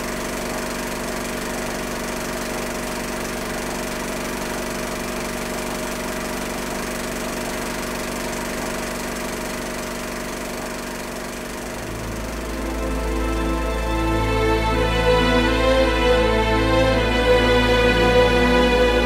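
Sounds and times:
mechanical drone with flutter: 0.0s - 14.6s.

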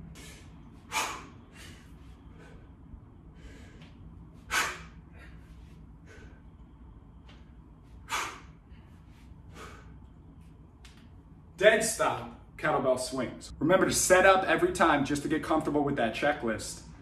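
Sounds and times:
man's sharp breaths: 0.0s - 6.7s, 7.3s - 10.1s
low room hum: 0.0s - 17.0s.

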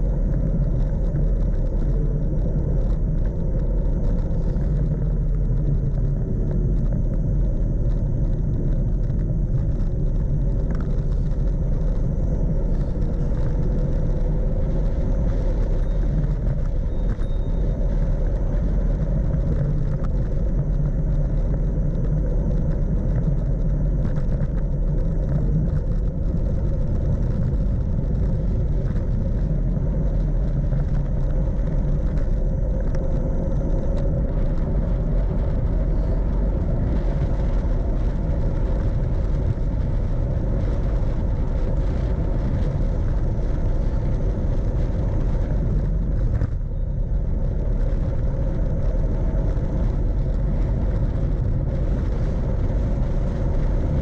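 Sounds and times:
tyre noise on asphalt: 0.0s - 54.0s
wind rumble on microphone: 0.0s - 54.0s.

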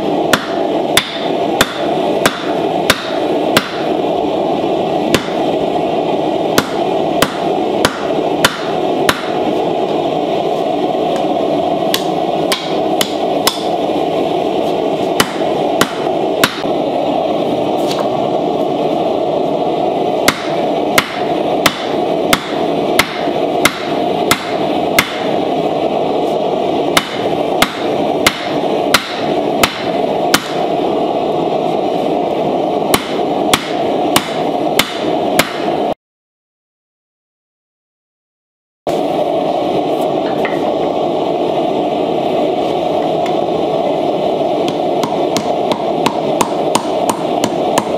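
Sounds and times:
steady rushing noise: 0.0s - 36.0s, 38.9s - 47.9s
hammer striking metal on anvil: 0.3s - 3.9s, 5.1s - 5.4s, 6.6s - 9.4s, 11.9s - 13.8s, 15.2s - 16.7s, 20.3s - 25.3s, 27.0s - 30.7s, 32.9s - 35.8s, 44.7s - 47.9s.

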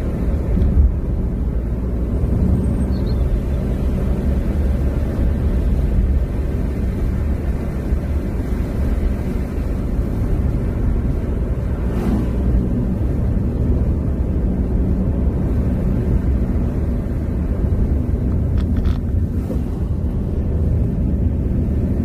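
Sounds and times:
car cabin road rumble: 0.0s - 22.0s
oncoming car passing: 10.2s - 14.7s.

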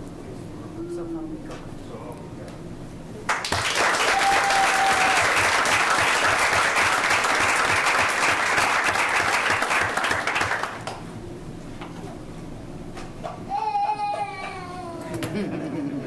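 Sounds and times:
people applauding: 3.3s - 11.0s.

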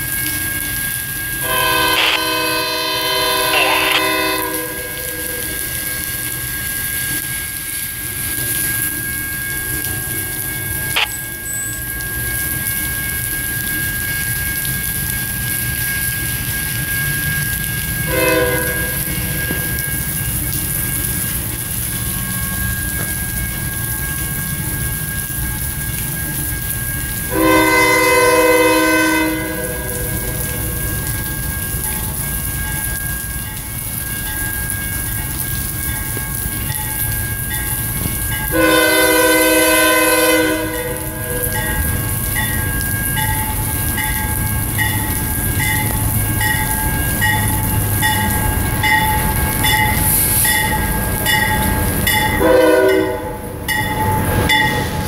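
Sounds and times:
steady rain: 0.0s - 55.0s
locomotive air horn blast: 1.4s - 5.9s, 18.1s - 19.8s, 27.3s - 30.8s, 38.5s - 41.6s, 52.4s - 53.6s.

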